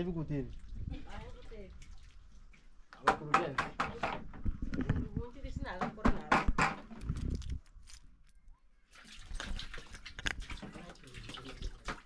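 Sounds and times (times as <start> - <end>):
water splashing in a plastic bucket: 0.0 - 5.2, 8.8 - 12.0.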